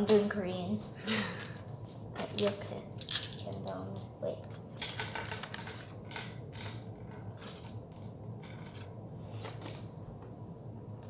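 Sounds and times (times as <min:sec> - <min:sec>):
faint steady hum: 0:00.0 - 0:11.0
cardboard rustling and scraping: 0:07.3 - 0:10.2.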